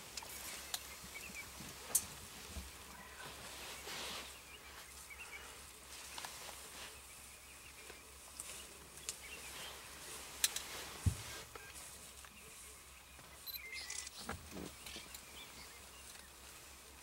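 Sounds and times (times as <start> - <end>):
soft rustle: 0.0 - 17.0
faint bird chirps: 11.2 - 16.8.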